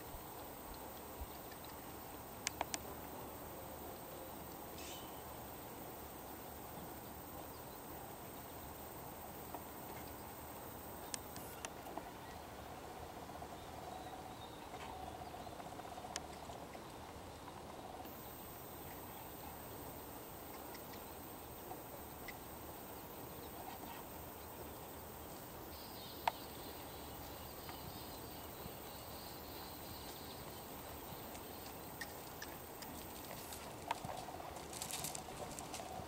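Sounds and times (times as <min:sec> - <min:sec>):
outdoor background noise: 0:00.0 - 0:36.0
light ticks: 0:00.3 - 0:01.8, 0:02.4 - 0:02.9, 0:11.0 - 0:12.0
sharp click: 0:02.4 - 0:02.9.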